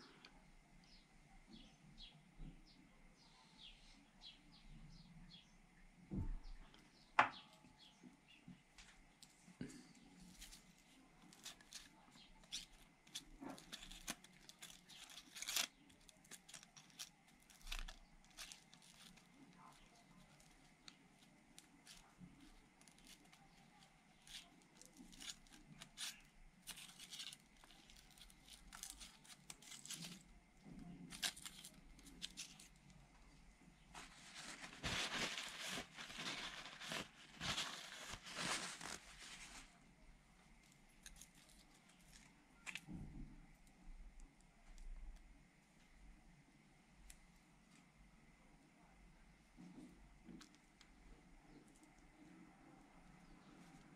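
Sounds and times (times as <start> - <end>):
paper towel rustling: 33.9 - 39.8.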